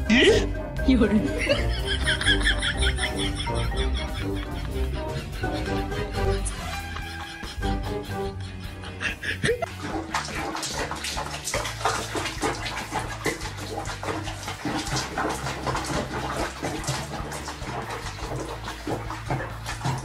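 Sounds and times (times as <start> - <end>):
background music with bass line: 0.0 - 20.0
water splashing in a basin: 9.4 - 20.0.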